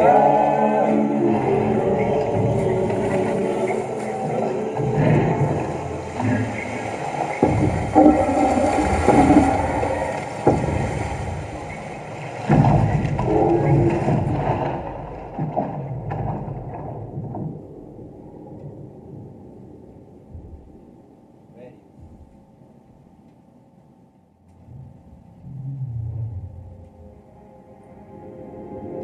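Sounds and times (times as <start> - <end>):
low rumbling: 0.0 - 22.4, 24.3 - 29.0
deep booming thuds: 7.4 - 17.6.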